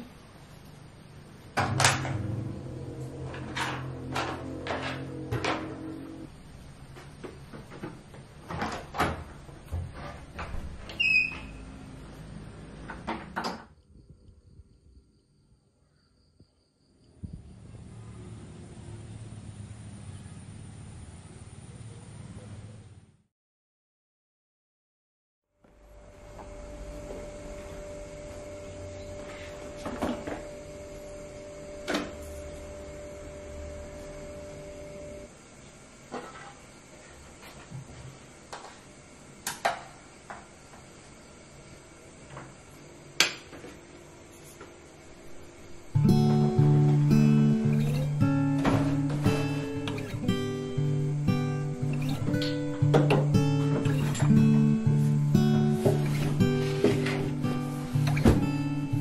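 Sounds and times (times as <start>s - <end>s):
steady electrical hum: 0.0s - 23.1s, 25.7s - 59.0s
low rumble: 2.0s - 6.8s.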